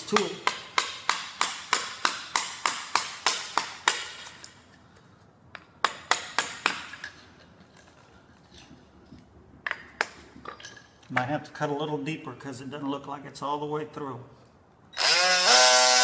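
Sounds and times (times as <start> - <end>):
hammer striking metal chisel: 0.0 - 4.6, 5.6 - 7.2.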